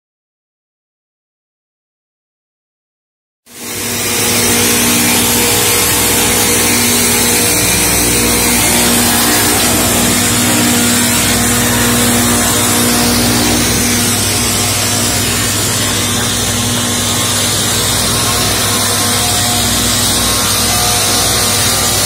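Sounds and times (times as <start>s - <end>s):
sawmill running: 3.5s - 22.0s.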